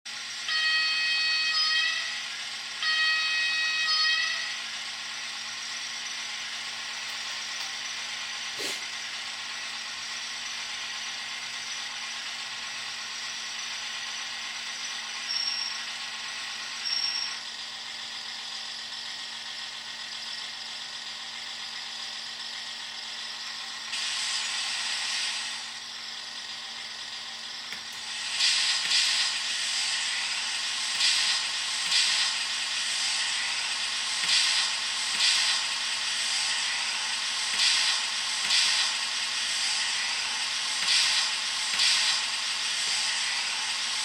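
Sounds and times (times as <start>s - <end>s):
hiss: 8.5s - 8.9s, 23.8s - 25.8s, 27.8s - 44.0s.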